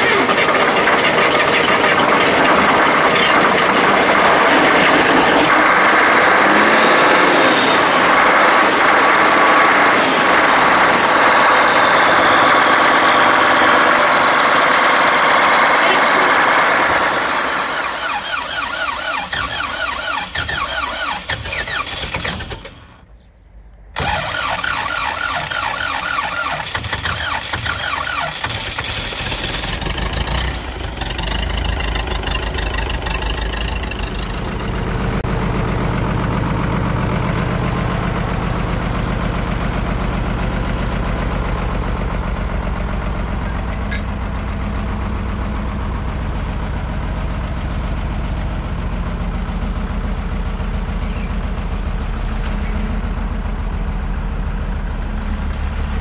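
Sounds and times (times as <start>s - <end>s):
diesel tractor engine idling: 0.0s - 6.8s, 7.7s - 56.0s
starter motor cranking: 15.9s - 23.0s, 24.0s - 35.2s.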